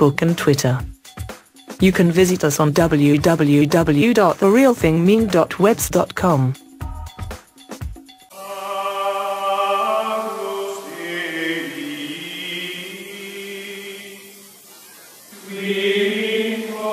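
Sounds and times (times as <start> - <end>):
chanted voices holding notes: 8.4 - 14.2, 15.4 - 16.9.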